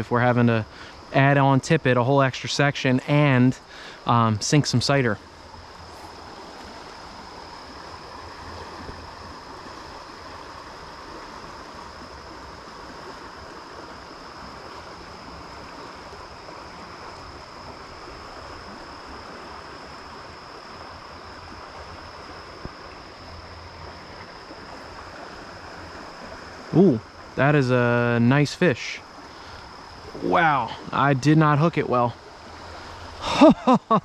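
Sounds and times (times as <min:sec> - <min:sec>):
river water flowing: 0:00.0 - 0:34.0.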